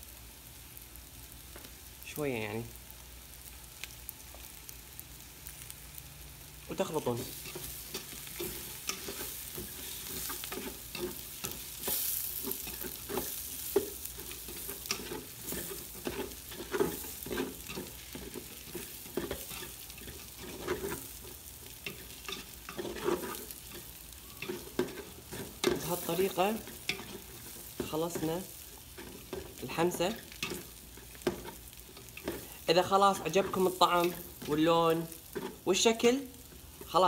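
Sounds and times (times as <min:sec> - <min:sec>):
frying sizzle: 0:00.0 - 0:37.0
spatula scraping in a metal pot: 0:21.8 - 0:28.2.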